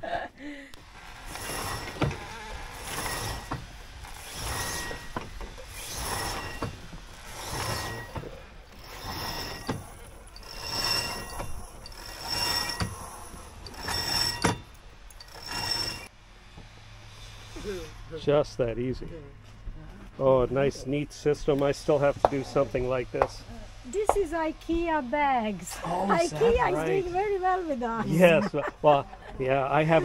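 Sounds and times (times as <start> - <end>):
rope squeaking through pulley blocks: 1.0 - 16.1.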